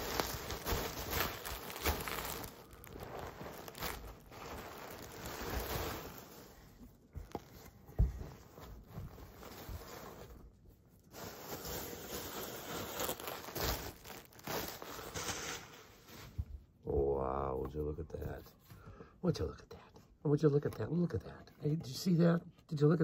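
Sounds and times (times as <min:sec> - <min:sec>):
bubble wrap crinkling: 0:00.0 - 0:16.4.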